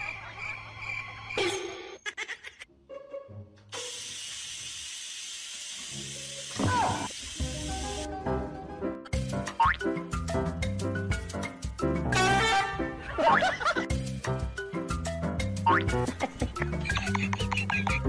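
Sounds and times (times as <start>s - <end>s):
steady hiss: 3.7s - 8.1s
background music: 6.7s - 18.0s.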